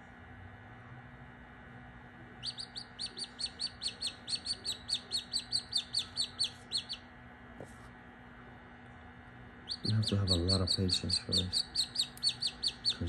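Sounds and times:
chick peeping: 0:02.4 - 0:07.0, 0:09.6 - 0:13.0.

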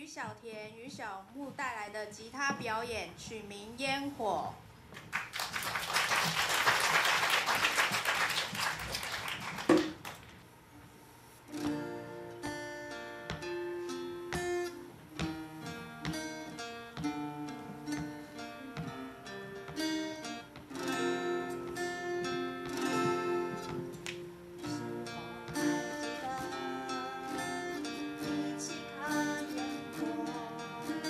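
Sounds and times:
acoustic guitars playing: 0:06.4 - 0:31.0.

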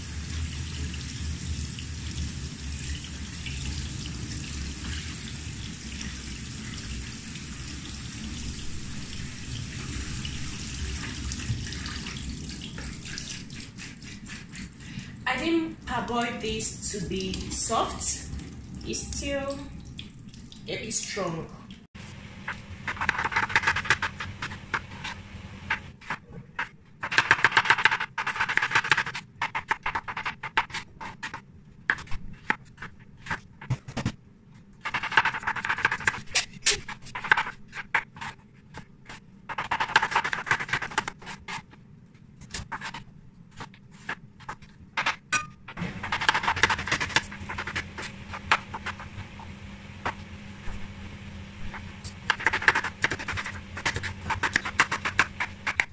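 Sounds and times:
low steady hum: 0:00.0 - 0:26.1, 0:41.8 - 0:55.9.

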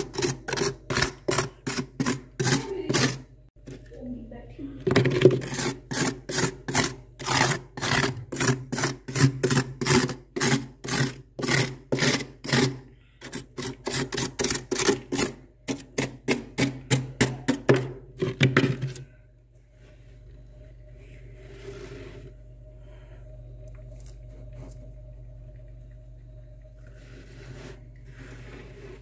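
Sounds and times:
scraper scraping frost: 0:00.0 - 0:03.2, 0:05.4 - 0:15.3, 0:26.9 - 0:29.0.

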